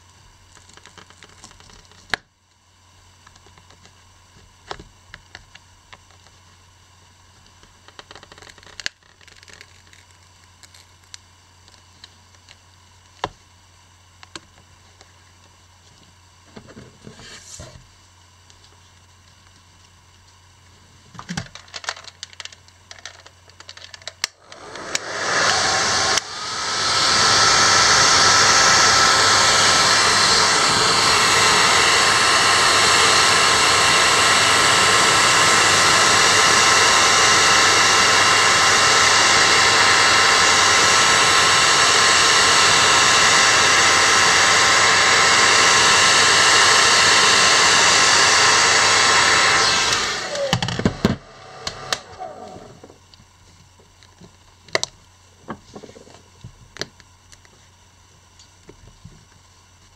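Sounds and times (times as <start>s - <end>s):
hair dryer blowing: 24.3s - 53.1s.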